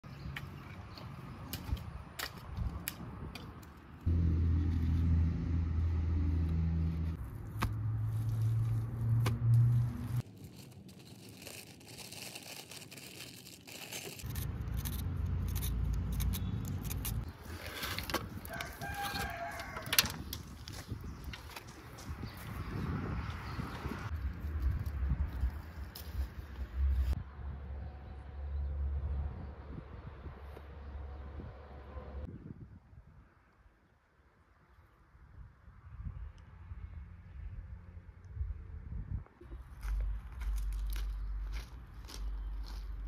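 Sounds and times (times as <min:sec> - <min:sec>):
low steady droning: 0:04.1 - 0:10.2
rooster crowing: 0:18.4 - 0:20.2.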